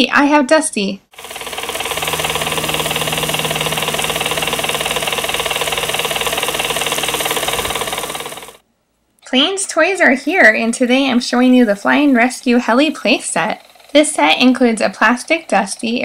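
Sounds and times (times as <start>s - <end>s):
toy helicopter motor whirring: 1.2s - 8.6s, 10.8s - 16.0s.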